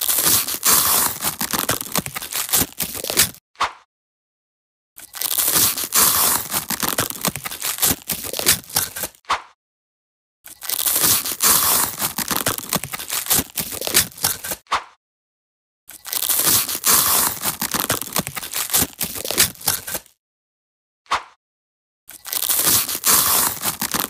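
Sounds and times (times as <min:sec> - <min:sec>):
crunching and crackling: 0:00.0 - 0:03.4, 0:05.0 - 0:09.2, 0:10.5 - 0:14.6, 0:15.9 - 0:20.1, 0:22.1 - 0:24.0.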